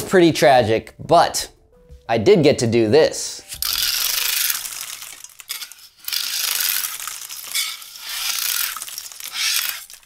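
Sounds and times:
thin plastic crackling: 0:03.5 - 0:10.0.

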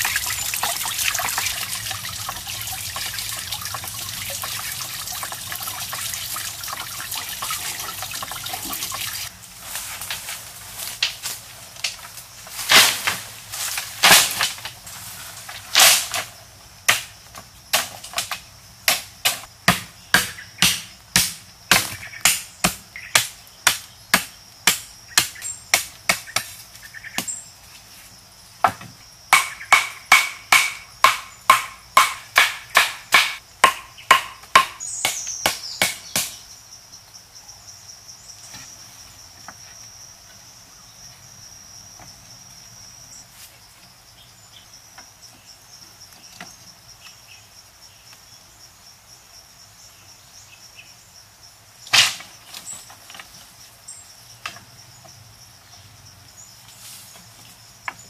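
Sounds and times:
water trickling: 0:00.0 - 0:09.3
bamboo poles clattering onto pile: 0:00.0 - 0:19.9, 0:51.9 - 0:53.6
blade chopping bamboo: 0:16.9 - 0:17.1, 0:17.7 - 0:26.6, 0:29.3 - 0:36.4.

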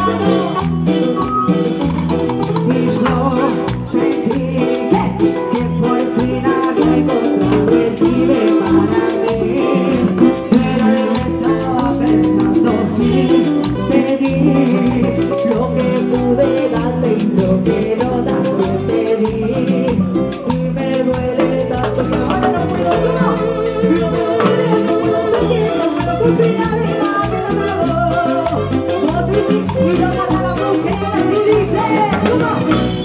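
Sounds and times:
woman singing into a microphone: 0:00.0 - 0:01.8, 0:02.5 - 0:33.0
button accordion: 0:00.0 - 0:16.5, 0:21.3 - 0:33.0
live latin dance band: 0:00.0 - 0:33.0.

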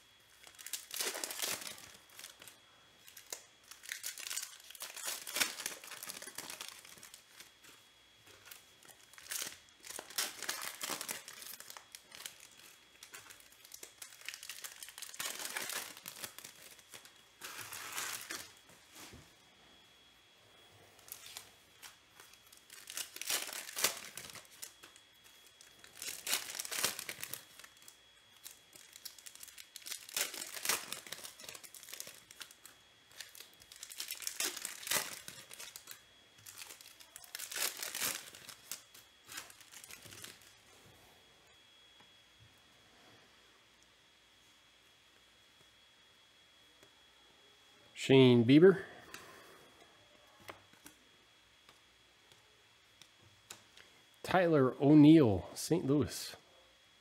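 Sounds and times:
foil wrappers tearing and crinkling: 0:00.0 - 0:19.2, 0:21.0 - 0:40.6.

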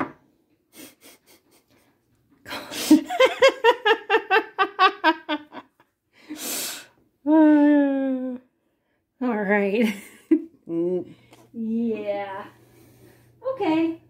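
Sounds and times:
person laughing: 0:02.5 - 0:05.7
sharp intake of breath: 0:06.2 - 0:07.0.

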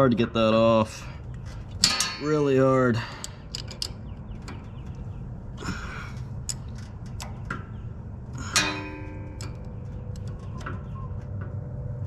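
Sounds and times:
low hum: 0:00.0 - 0:12.0
wrench clinking on drain plug: 0:01.8 - 0:04.7, 0:08.4 - 0:10.4.

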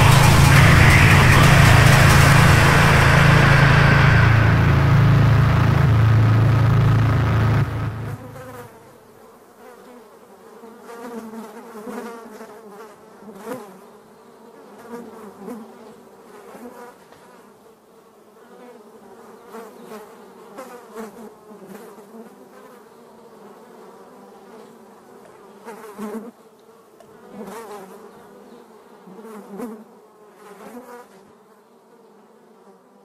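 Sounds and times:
insect-like buzzing drone: 0:00.0 - 0:08.7
loud low rumble: 0:00.0 - 0:08.7.

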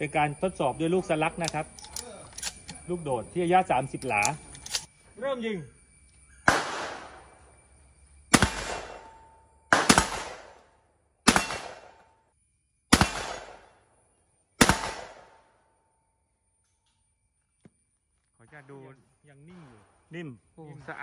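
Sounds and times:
shotgun shots: 0:06.4 - 0:07.4, 0:08.3 - 0:12.1, 0:12.9 - 0:13.8, 0:14.6 - 0:15.5.

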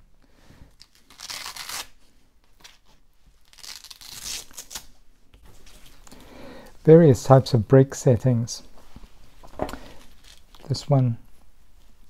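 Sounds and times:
hook-and-loop fastener ripping: 0:00.8 - 0:05.0.

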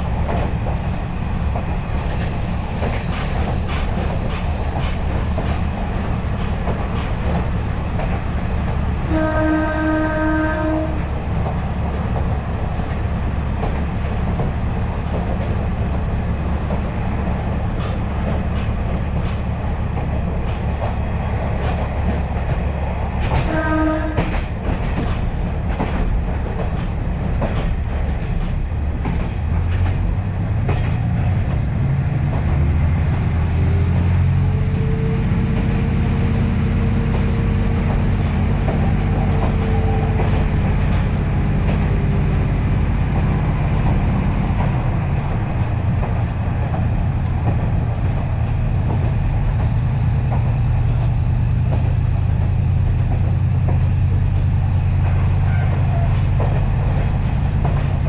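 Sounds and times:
diesel railcar engine: 0:00.0 - 0:58.0
wheels clacking on rails: 0:00.0 - 0:58.0
train horn: 0:09.0 - 0:11.1, 0:23.4 - 0:24.5, 0:34.5 - 0:35.4, 0:38.8 - 0:40.4, 0:55.1 - 0:56.3.

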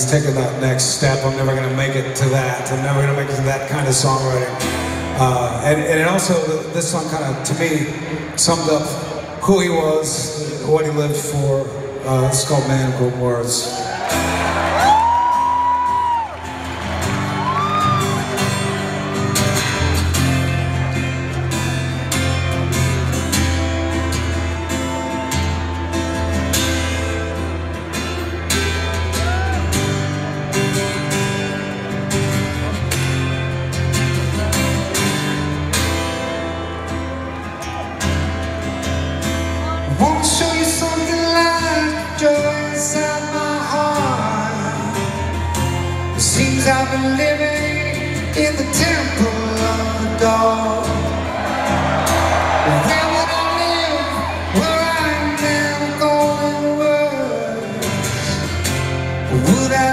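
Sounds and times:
acoustic guitar: 0:00.0 - 0:59.9
man singing: 0:39.9 - 0:45.2, 0:46.2 - 0:51.2, 0:52.6 - 0:58.5, 0:59.2 - 0:59.9.

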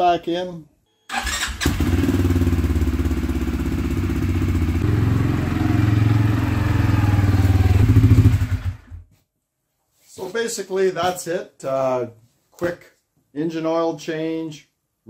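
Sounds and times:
atv engine running: 0:01.6 - 0:08.9.

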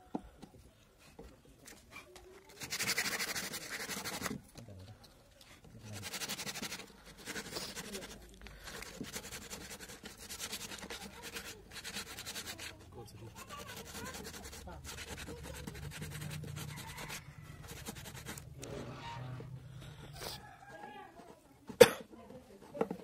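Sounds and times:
sandpaper rubbing on wood: 0:02.6 - 0:04.4, 0:05.8 - 0:18.7.

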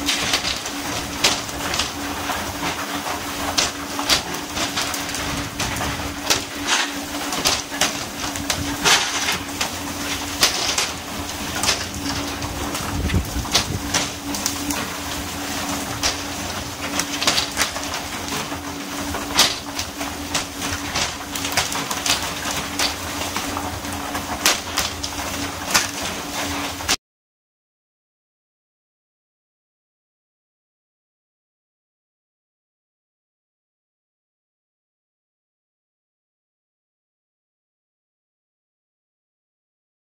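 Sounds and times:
boat machinery hum: 0:00.0 - 0:26.9.

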